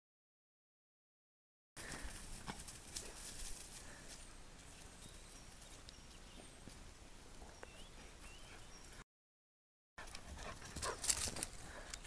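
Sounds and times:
rustling in dry grass: 1.8s - 7.0s.

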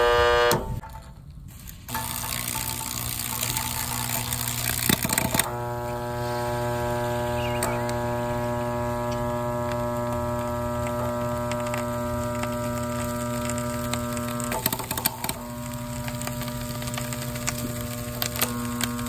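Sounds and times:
fan motor humming: 0.0s - 0.8s, 1.8s - 19.0s
clicks and rattles: 0.8s - 5.5s, 10.8s - 19.0s.

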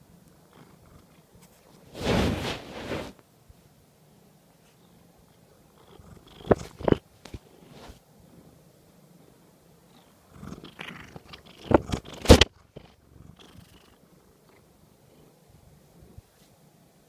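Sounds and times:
cat purring: 0.0s - 3.2s, 4.7s - 16.3s
fur rubbing on microphone: 1.5s - 3.2s, 7.6s - 8.0s.

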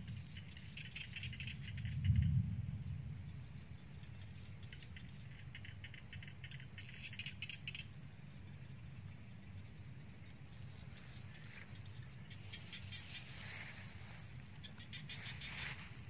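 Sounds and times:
crickets chirping in trills: 0.0s - 16.0s
low rumble: 1.6s - 5.3s.

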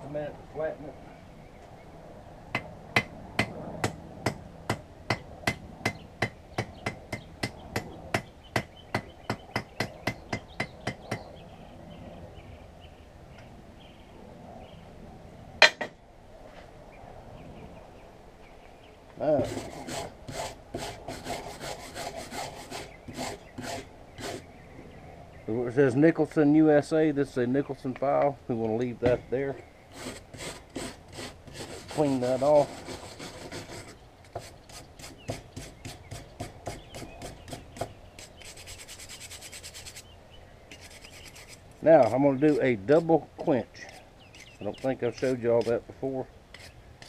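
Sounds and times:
wire brush scrubbing steel: 19.4s - 24.4s, 29.9s - 40.1s, 40.7s - 45.9s.

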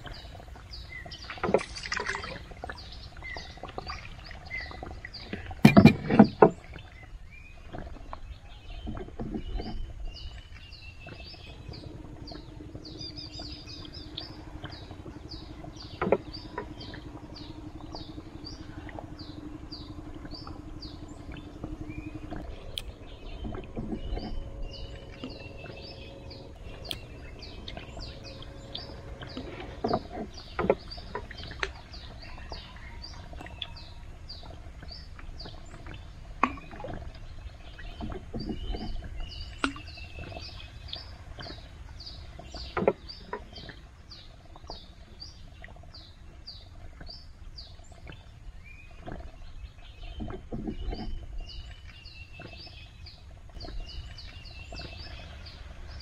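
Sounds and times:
birds chirping: 0.0s - 56.0s
low hum: 0.0s - 56.0s
sharp knocks on wooden boat: 5.6s - 6.6s.

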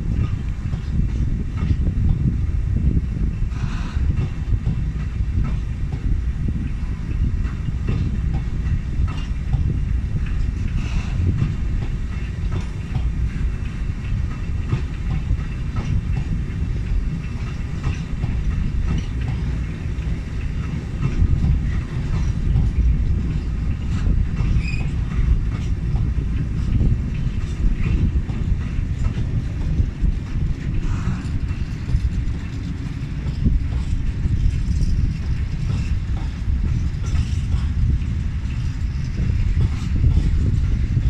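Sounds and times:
train wheels rumbling on rail: 0.0s - 41.0s
wheels clicking over rail joints: 0.0s - 41.0s
wheel squeaks: 21.6s - 25.6s.

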